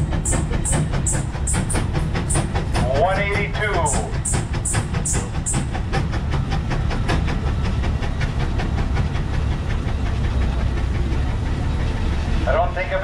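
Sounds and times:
steam engine exhaust barking: 0.0s - 7.2s.

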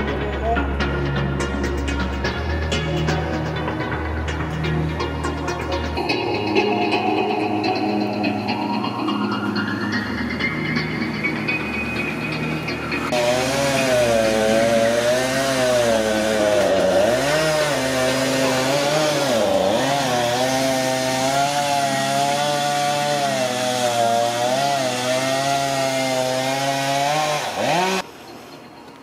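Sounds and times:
chainsaw engine revving: 13.0s - 28.1s.

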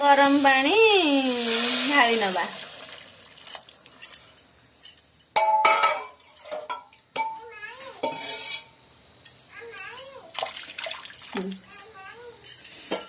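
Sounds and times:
metal spoon clinking and scraping: 3.5s - 6.8s, 8.0s - 8.7s, 11.6s - 13.0s.

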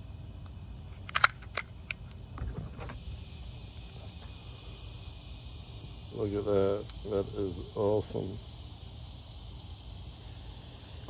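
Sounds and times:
low background noise: 0.0s - 11.0s
pistol parts clicking: 1.0s - 2.2s.

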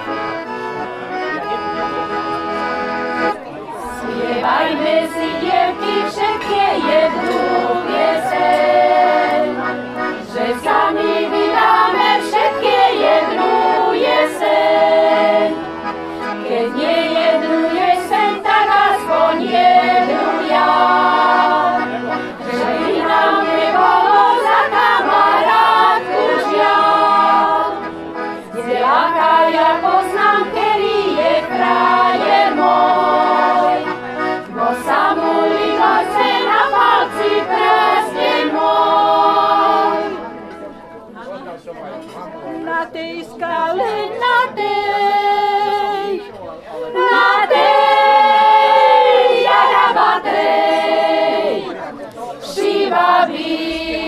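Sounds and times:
women's choir singing: 0.0s - 0.6s, 3.8s - 40.4s, 42.4s - 54.0s
accordion: 0.0s - 54.0s.

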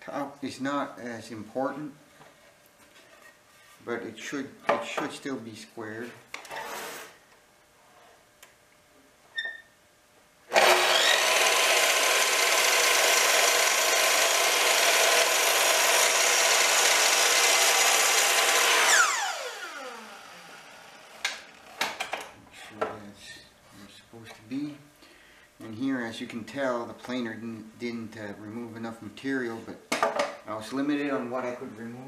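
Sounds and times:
miter saw cutting wood: 10.5s - 21.7s.

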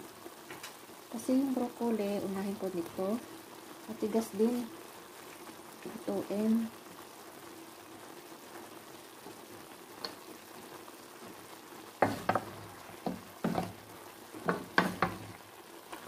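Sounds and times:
food sizzling in a frying pan: 0.0s - 16.0s
spatula scraping a pan: 12.0s - 13.8s.

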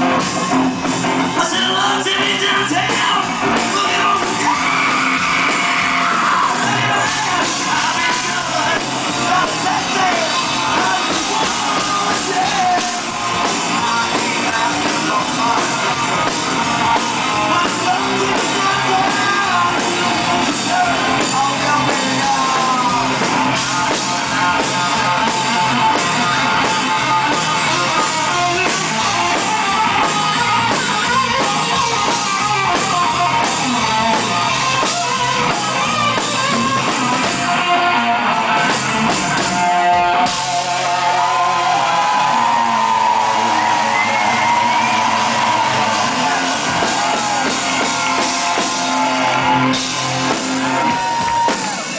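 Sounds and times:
drum kit: 0.0s - 51.9s
electric guitar: 0.0s - 51.9s
man singing into a microphone: 1.3s - 5.1s, 6.0s - 16.4s, 17.2s - 29.8s.

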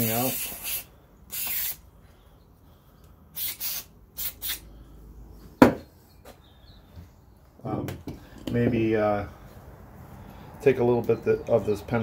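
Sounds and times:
aerosol spray can hissing: 0.0s - 1.8s, 3.4s - 4.6s.

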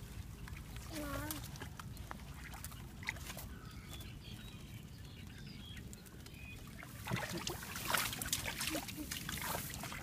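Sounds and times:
hands splashing in water: 7.0s - 10.0s.

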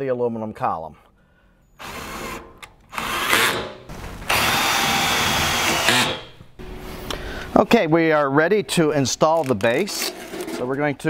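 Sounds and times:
cordless drill driving screws: 1.8s - 6.4s.

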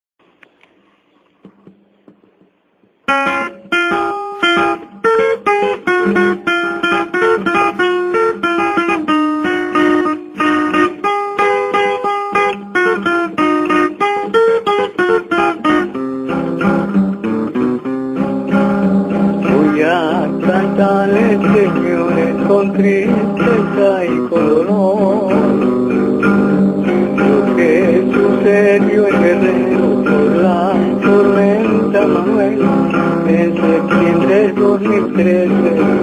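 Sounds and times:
guitar music: 1.4s - 36.0s.

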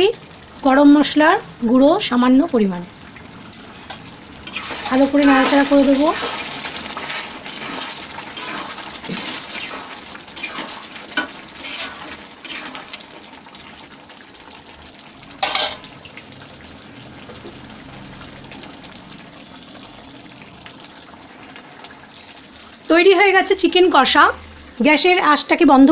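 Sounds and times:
curry sizzling: 0.0s - 25.9s
spatula scraping a pan: 4.4s - 13.0s.

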